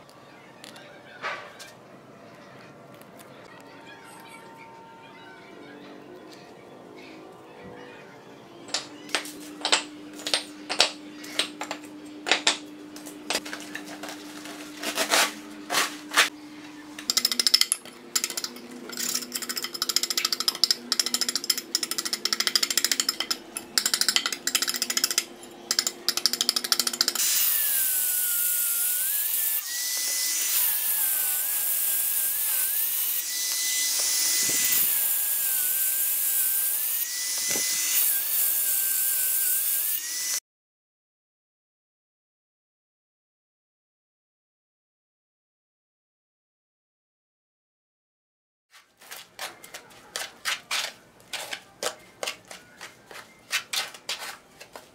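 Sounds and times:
angle grinder cutting brick: 13.2s - 16.4s, 17.0s - 40.4s
trowel scraping concrete: 13.3s - 16.4s, 48.8s - 54.9s.

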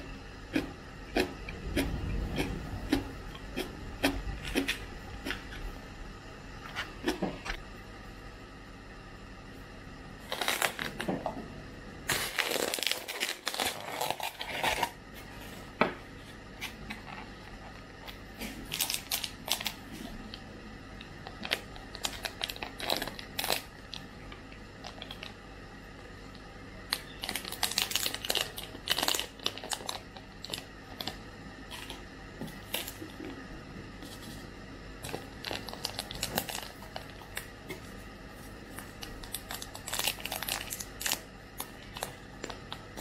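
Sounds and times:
plastic packaging crinkling: 10.2s - 11.1s, 12.1s - 15.7s, 16.7s - 20.3s, 21.2s - 24.1s, 26.9s - 33.2s, 34.0s - 43.0s
plastic packet tearing: 10.2s - 11.1s, 12.1s - 15.0s, 18.6s - 19.8s, 21.4s - 24.0s, 26.9s - 31.9s, 35.0s - 37.5s, 38.7s - 42.8s.

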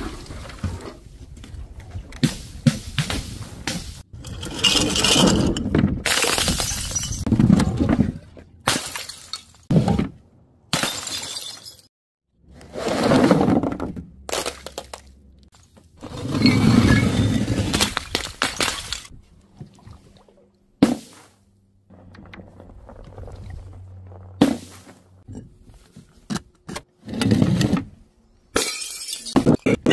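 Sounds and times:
glass jars shattering on paving: 4.2s - 7.3s, 10.7s - 11.9s, 16.8s - 19.1s, 28.6s - 29.7s.

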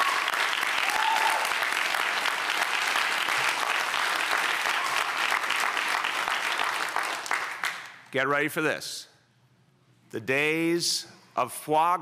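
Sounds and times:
crowd applauding: 0.0s - 8.0s.

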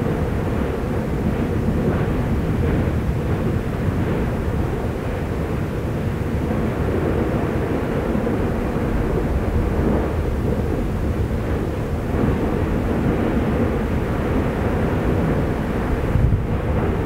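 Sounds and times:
volcano rumbling roar: 0.0s - 17.0s.

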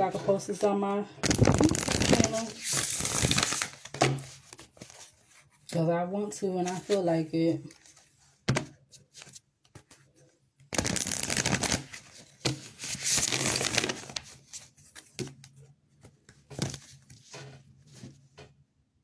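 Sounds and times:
cards being shuffled: 1.2s - 5.4s, 10.7s - 18.1s.

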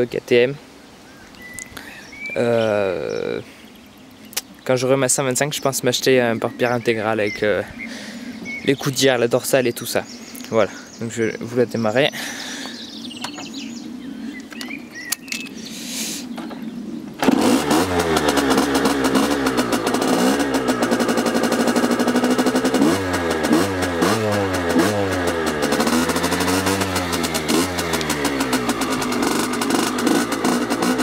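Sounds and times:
two-stroke engine revving: 17.2s - 31.0s.

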